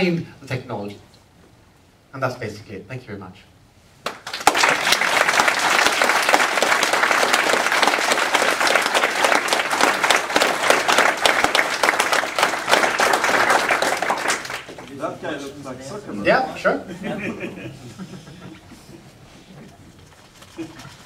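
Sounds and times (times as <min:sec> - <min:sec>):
audience applause: 0:04.0 - 0:15.0.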